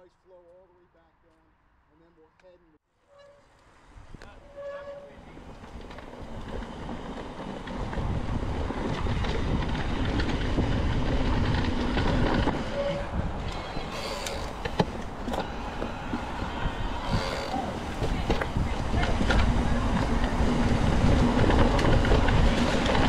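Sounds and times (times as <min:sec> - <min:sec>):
wind and tyre noise rumbling: 0:03.4 - 0:23.0
bike rattles and clicks: 0:05.1 - 0:23.0.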